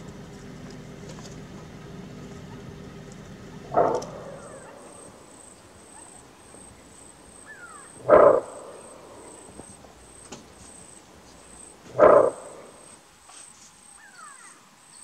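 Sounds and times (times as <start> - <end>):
antelope alarm bark: 3.5 - 9.6, 11.8 - 13.0.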